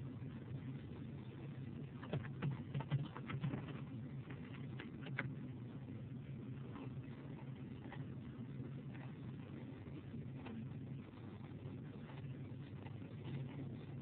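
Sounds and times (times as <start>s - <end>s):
faint low hum: 0.0s - 14.0s
keyboard keys tapping: 2.0s - 3.8s.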